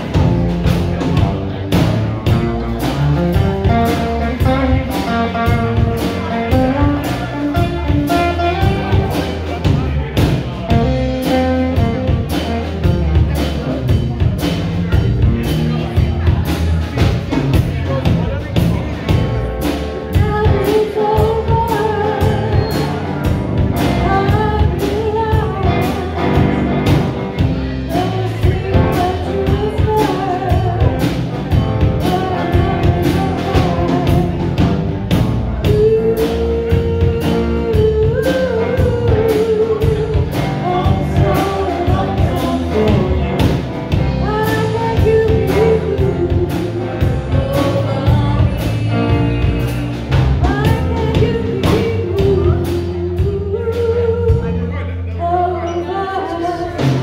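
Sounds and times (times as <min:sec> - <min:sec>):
drum kit: 0:00.0 - 0:54.8, 0:56.5 - 0:57.0
woman singing: 0:20.1 - 0:34.7, 0:35.6 - 0:57.0.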